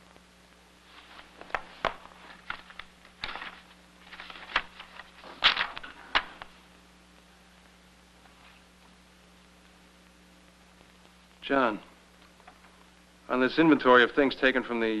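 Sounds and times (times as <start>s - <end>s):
paper rustling: 0.9s - 6.5s.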